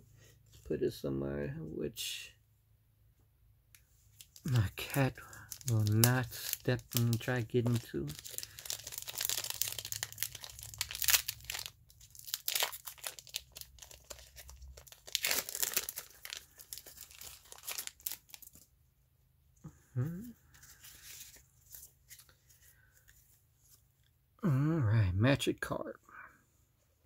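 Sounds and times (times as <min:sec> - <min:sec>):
foil wrapper crinkling and tearing: 0:04.2 - 0:18.6.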